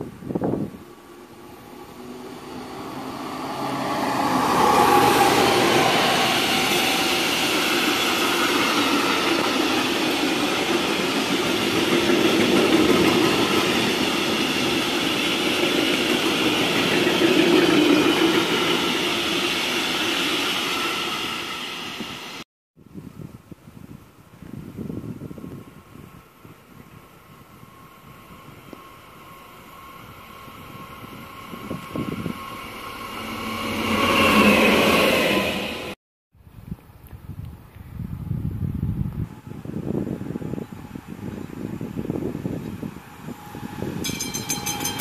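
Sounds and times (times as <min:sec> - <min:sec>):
wagons rumbling over rails: 0:00.0 - 0:22.2, 0:39.3 - 0:45.0
freight train passing: 0:00.0 - 0:22.4, 0:25.2 - 0:36.0, 0:38.2 - 0:45.0.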